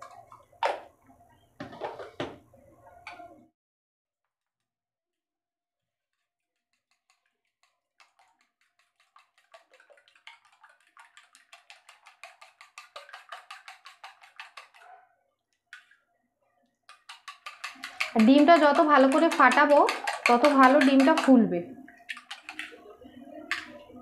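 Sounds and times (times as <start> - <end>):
fork beating egg in steel bowl: 6.0 - 15.0, 16.9 - 23.8.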